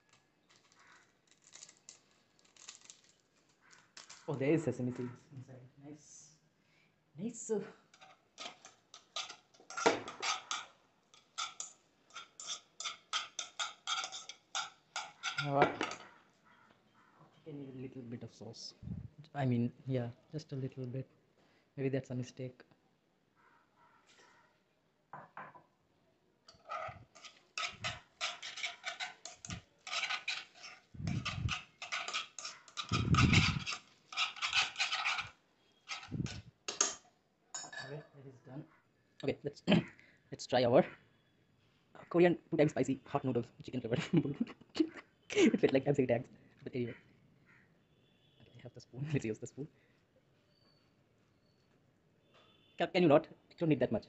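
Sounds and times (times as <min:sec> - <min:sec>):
chopsticks clicking and scraping pan: 0:00.0 - 0:04.3, 0:07.9 - 0:16.1, 0:26.5 - 0:37.0.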